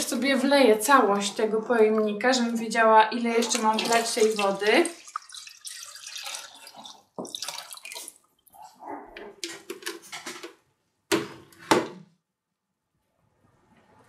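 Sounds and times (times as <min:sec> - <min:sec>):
water pouring and splashing: 0:03.2 - 0:08.6.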